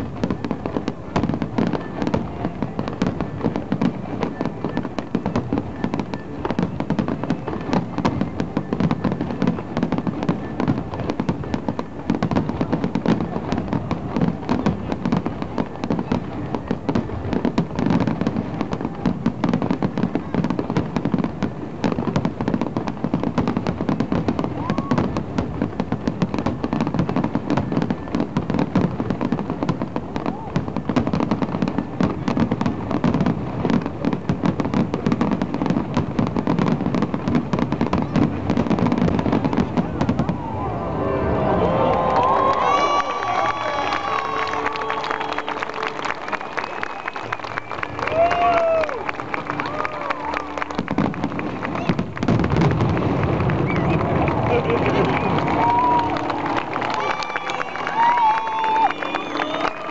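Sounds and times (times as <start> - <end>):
fireworks bursting: 0.0 - 59.9.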